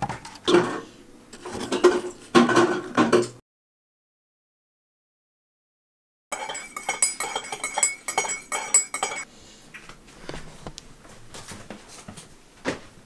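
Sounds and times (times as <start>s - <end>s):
teaspoon clinking in mug: 6.3s - 9.3s.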